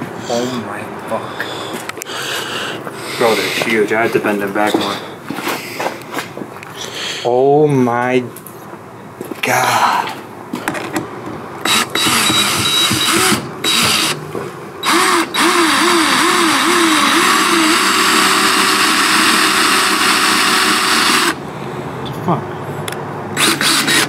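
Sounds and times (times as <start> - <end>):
cordless drill driving into wood: 11.6 - 14.2, 14.8 - 21.4, 23.4 - 24.0.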